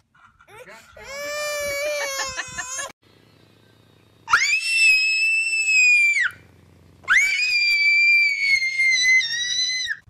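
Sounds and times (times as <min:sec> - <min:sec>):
toddler girl screaming: 0:01.0 - 0:02.9, 0:04.3 - 0:06.4, 0:07.1 - 0:10.0.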